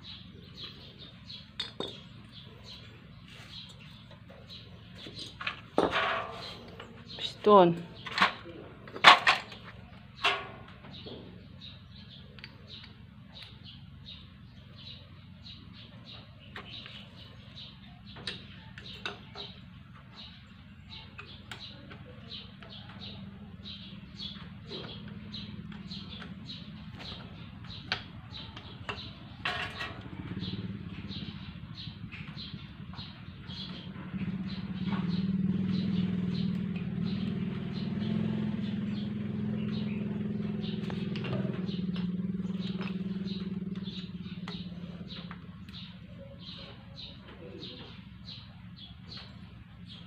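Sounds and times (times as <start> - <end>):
bird chirping: 0.0 - 50.0
engine running: 0.0 - 50.0
tools clattering: 1.6 - 2.2, 3.6 - 7.3, 8.0 - 10.8.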